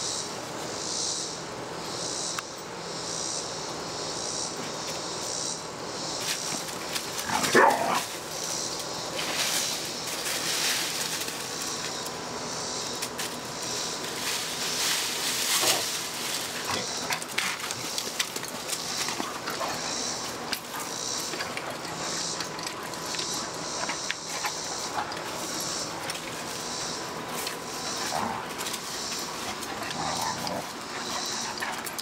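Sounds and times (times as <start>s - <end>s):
paws scuffling on dry leaves: 6.2s - 12.0s, 13.0s - 32.0s
dog noises: 7.2s - 8.1s, 15.6s - 32.0s.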